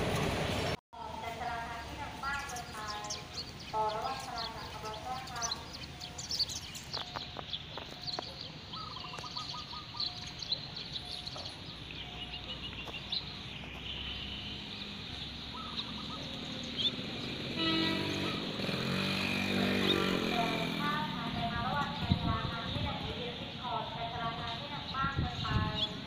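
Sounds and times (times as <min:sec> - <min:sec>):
people's voices: 0:01.0 - 0:05.9, 0:19.8 - 0:26.0
small birds chirping: 0:01.4 - 0:26.0.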